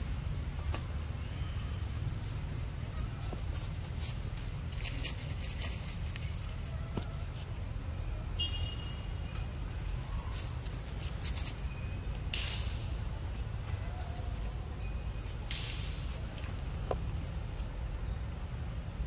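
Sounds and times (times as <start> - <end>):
insect drone: 0.0 - 19.0
dry leaves rustling: 0.6 - 7.6, 9.4 - 11.8, 12.4 - 17.9.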